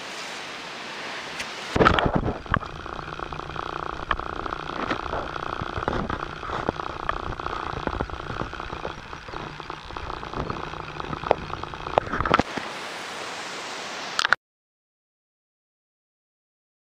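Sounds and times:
thin steady hiss: 0.0 - 14.3
rushing outdoor noise: 0.0 - 14.4
sharp clicks: 1.8 - 12.5.

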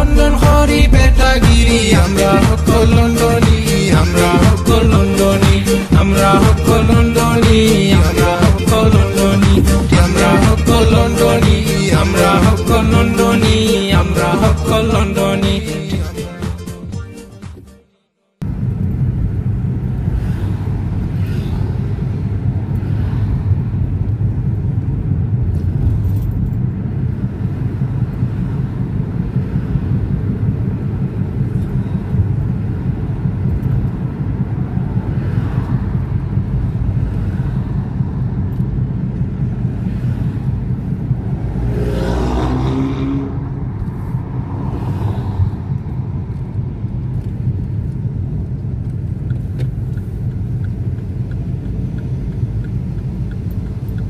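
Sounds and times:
rising engine note: 0.0 - 16.3, 24.5 - 46.7
car engine and tyre rumble: 0.0 - 16.9, 18.4 - 54.0.

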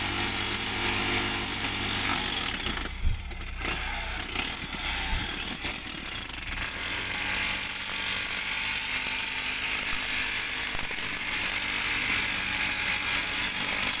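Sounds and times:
demolition hammer chipping rock: 0.0 - 14.0.

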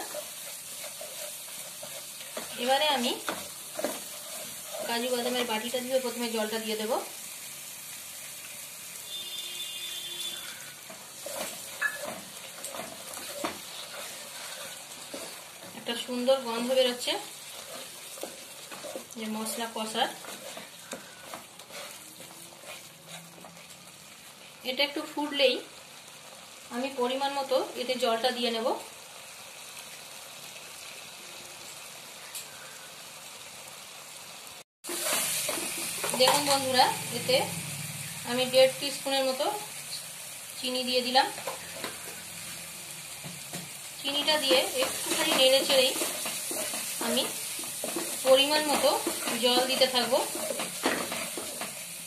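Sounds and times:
wooden spoon scraping: 0.0 - 6.6, 9.7 - 24.5, 34.9 - 36.7, 43.5 - 51.9
paste sizzling in a wok: 0.0 - 52.0.

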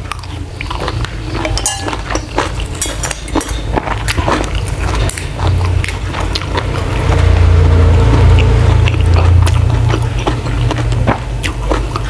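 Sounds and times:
crunchy chewing with moist smacks: 0.0 - 7.2, 8.0 - 12.0
low rumble: 5.6 - 11.4.

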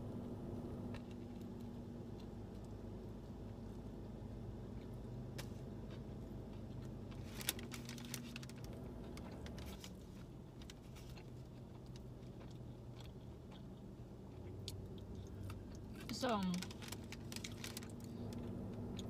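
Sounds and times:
low hum: 0.0 - 19.0
chewing food: 0.9 - 3.9, 4.6 - 19.0
paper wrapper crinkling: 7.1 - 11.1, 16.5 - 18.4.

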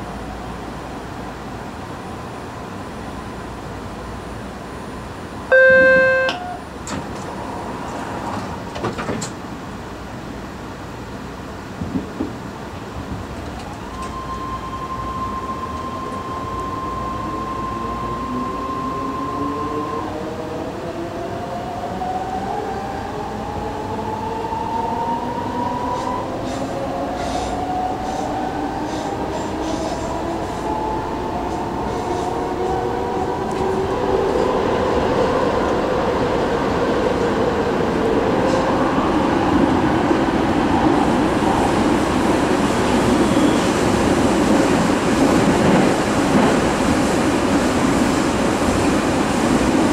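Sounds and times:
steady high tone: 5.5 - 6.7.

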